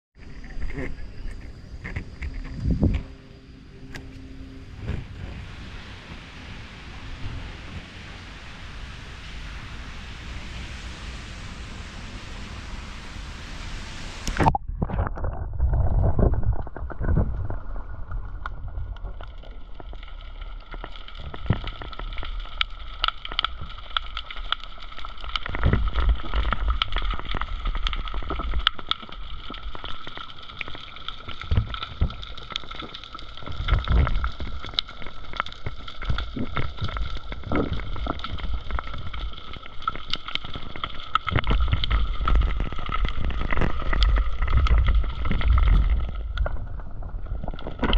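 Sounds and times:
underwater crackling and clicking: 0.2s - 3.2s, 14.2s - 47.9s
faint multi-tone hum: 0.2s - 15.0s
low rumbles of moving water: 0.2s - 47.9s.

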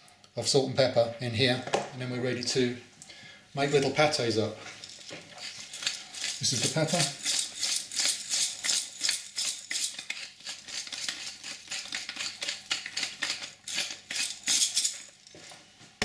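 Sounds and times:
pepper mill grinding: 4.8s - 15.6s.

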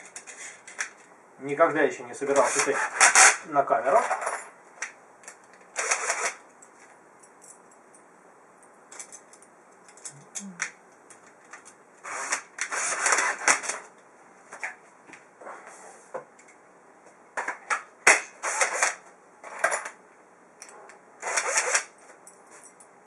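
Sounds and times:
small metal parts clicking and rattling: 8.6s - 10.4s.

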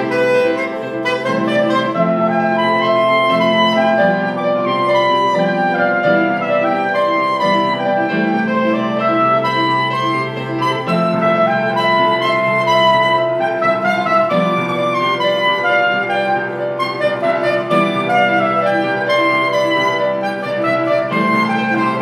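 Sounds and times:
piano playing: 0.0s - 22.0s
soprano saxophone: 0.0s - 22.0s.

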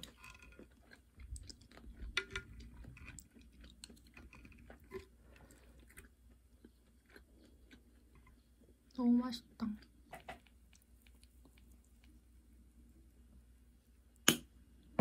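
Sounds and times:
person chewing: 0.0s - 8.9s, 10.0s - 12.3s.

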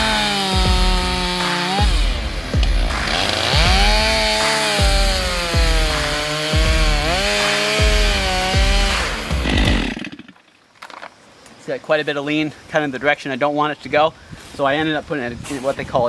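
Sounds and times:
chainsaw cutting into tree trunk: 0.0s - 10.4s.

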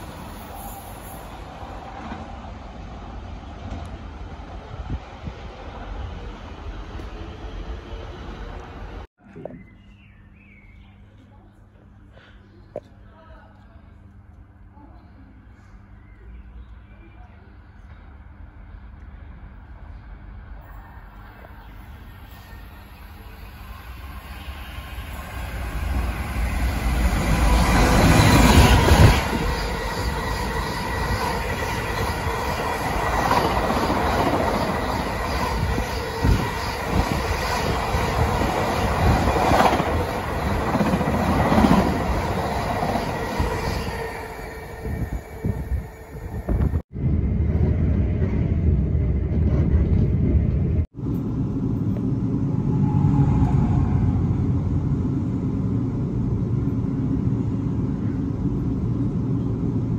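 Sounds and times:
diesel locomotive passing: 0.0s - 9.1s, 17.7s - 59.9s
freight train rumbling past: 0.0s - 9.1s, 17.9s - 59.9s
train wheel ringing and squeal: 20.6s - 46.8s.

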